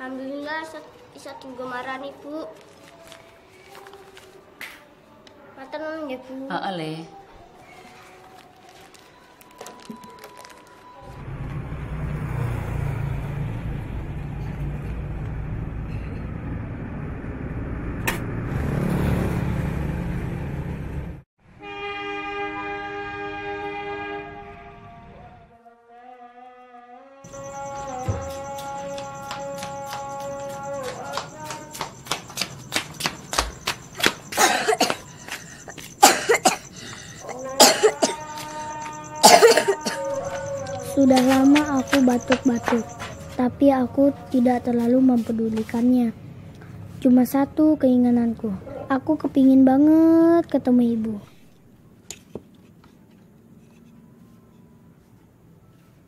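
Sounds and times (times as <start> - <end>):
motor vehicles rumbling: 10.5 - 21.2, 27.3 - 54.2
vehicle passing: 11.0 - 21.2, 27.3 - 36.0, 36.6 - 51.6
boy coughing: 34.3 - 40.3.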